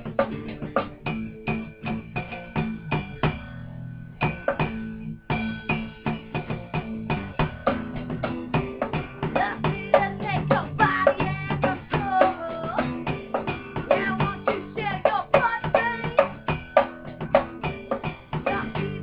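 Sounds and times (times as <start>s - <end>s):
drum kit and cymbals: 0.0s - 3.6s, 4.2s - 19.0s
guitars playing: 0.0s - 19.0s
woman singing: 9.2s - 13.2s, 13.8s - 16.4s, 18.4s - 19.0s.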